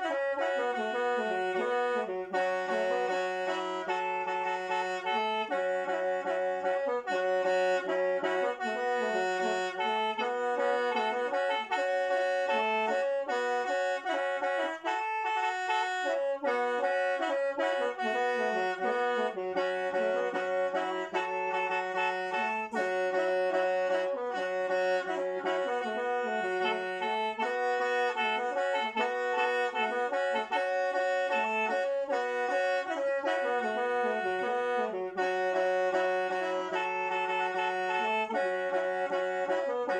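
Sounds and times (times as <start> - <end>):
mouth organ melody over drone: 16.0 - 39.9.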